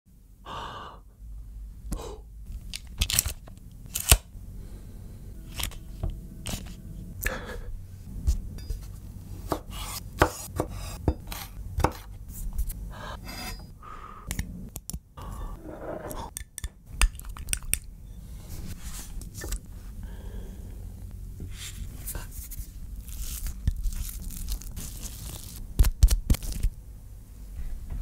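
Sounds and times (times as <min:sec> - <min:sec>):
knife chopping on wooden board: 0:09.5 - 0:12.1.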